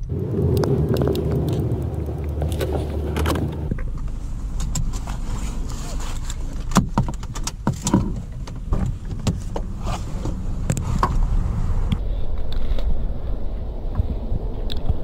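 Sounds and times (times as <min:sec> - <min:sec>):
outside noise: 0:00.0 - 0:15.0
car door latch and opening: 0:06.3 - 0:11.3.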